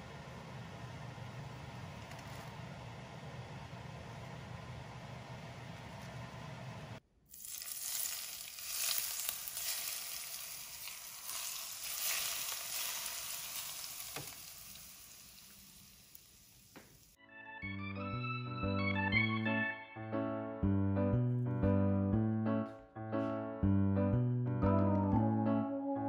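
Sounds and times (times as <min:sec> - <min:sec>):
hot oil sizzling and crackling: 0:07.3 - 0:17.2.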